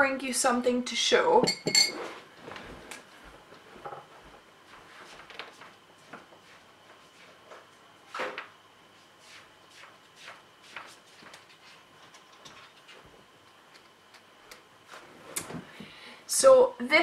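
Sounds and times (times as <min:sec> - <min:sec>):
faint knocks and clatter: 0:03.8 - 0:04.4, 0:11.2 - 0:14.3.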